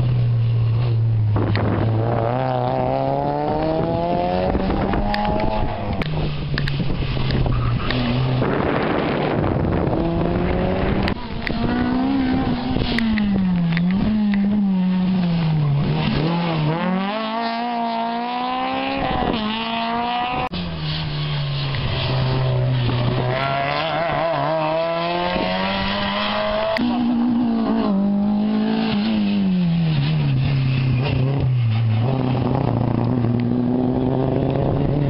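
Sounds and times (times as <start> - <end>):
rally car engine revving: 0.0 - 35.0.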